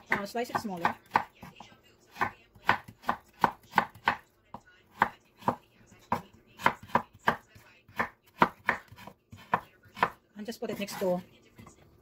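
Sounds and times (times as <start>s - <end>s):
knife chopping on wooden board: 0.0s - 4.2s, 4.9s - 11.7s.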